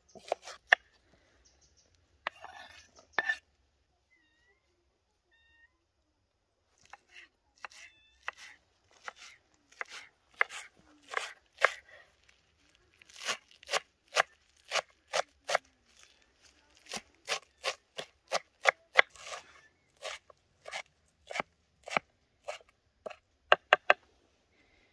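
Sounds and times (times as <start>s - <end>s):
knife chopping on wooden board: 7.6s - 11.8s, 20.0s - 24.0s.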